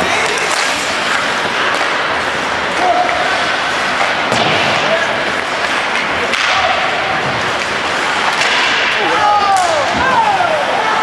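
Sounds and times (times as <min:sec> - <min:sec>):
hockey sticks knocking puck: 0:00.0 - 0:10.2
arena noise: 0:00.0 - 0:11.0
rush of skates on ice: 0:00.0 - 0:11.0.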